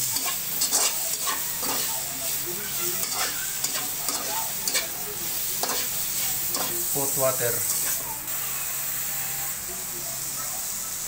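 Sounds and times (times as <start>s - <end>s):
metal spatula scraping a wok: 0.0s - 8.0s
oil sizzling: 0.0s - 11.0s.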